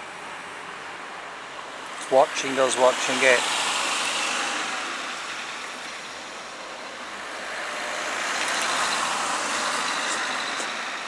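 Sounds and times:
vehicle passing: 7.0 - 11.0.

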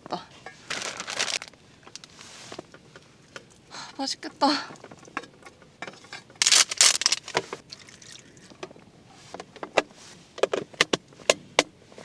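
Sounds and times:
plastic wrapping rustling: 0.6 - 2.5, 6.4 - 7.4.

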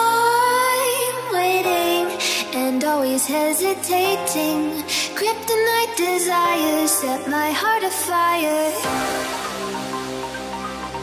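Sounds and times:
electronic pop music: 0.0 - 11.0.

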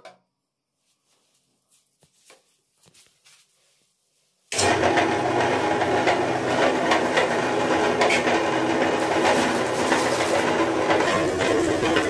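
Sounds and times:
electric meat grinder running: 4.6 - 12.0.

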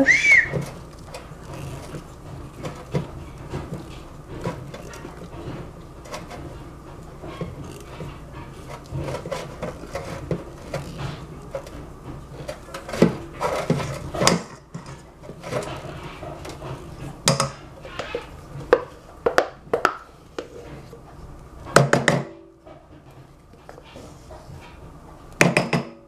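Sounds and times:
spatula scraping a saucepan: 0.5 - 19.1.

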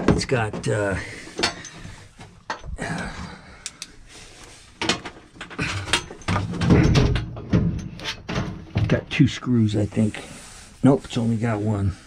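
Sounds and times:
washing machine parts rattling: 0.0 - 3.0, 4.8 - 9.1.

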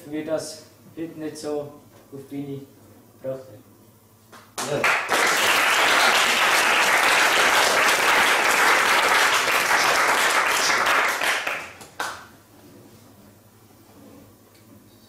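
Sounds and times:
audience applauding: 4.6 - 12.3.

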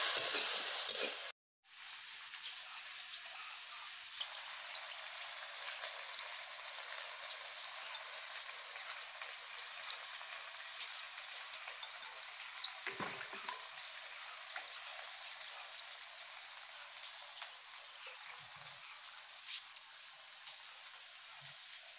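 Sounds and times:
greens sizzling in a wok: 0.0 - 21.9
wood fire crackling: 4.2 - 21.9.

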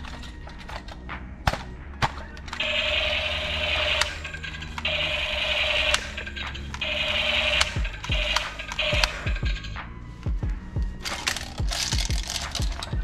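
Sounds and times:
plastic clicks: 0.0 - 2.7, 11.0 - 13.0
toy gun buzzing: 2.6 - 9.4.

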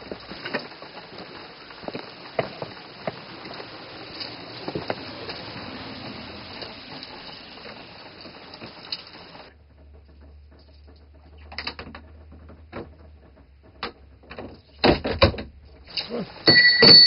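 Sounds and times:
rain hiss: 0.0 - 11.3, 15.8 - 16.7
low hum: 0.0 - 14.8.

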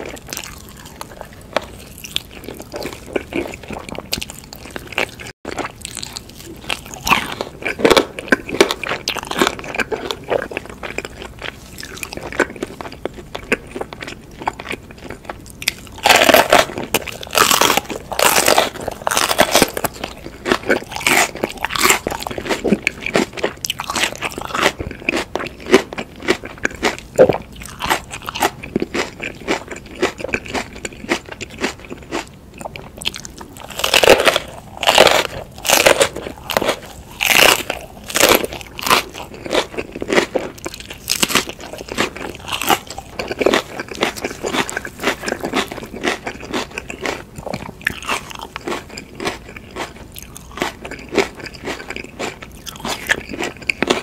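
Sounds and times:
crunching and chewing peppers: 0.0 - 54.0
gnawing at chicken drumstick: 33.6 - 54.0.

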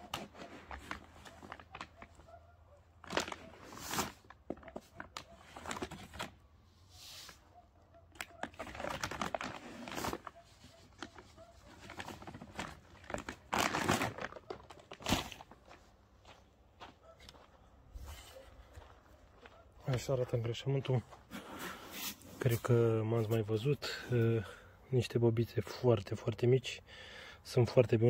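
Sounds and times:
plastic bag crinkling: 0.0 - 2.2, 3.0 - 6.3, 8.3 - 15.8.

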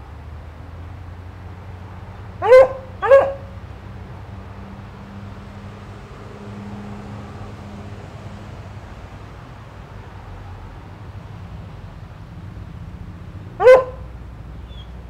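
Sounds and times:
dog barking: 2.4 - 3.5, 13.6 - 14.1.

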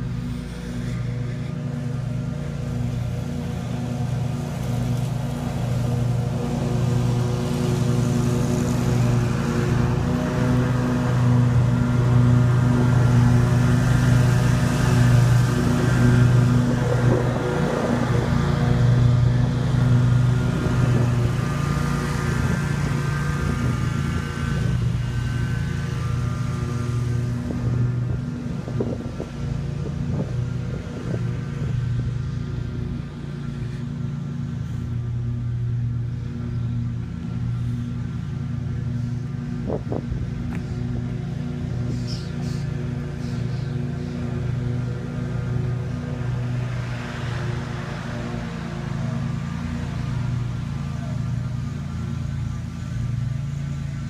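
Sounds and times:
engine running steadily: 0.0 - 54.0.

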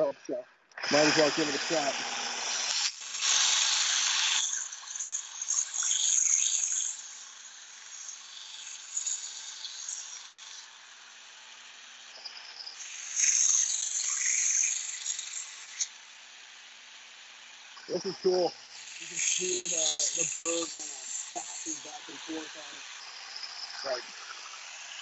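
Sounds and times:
knife grinding on sanding belt: 1.0 - 10.8, 12.6 - 25.0
belt sander humming: 17.8 - 25.0.

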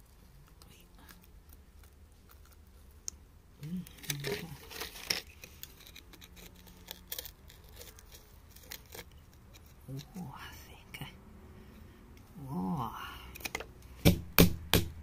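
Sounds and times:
metal pick scraping clay: 3.6 - 10.2.

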